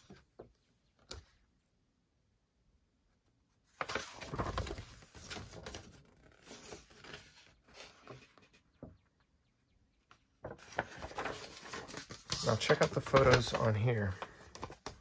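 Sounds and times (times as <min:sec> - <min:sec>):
paper rustling and crinkling: 0:03.7 - 0:08.9, 0:10.4 - 0:15.0.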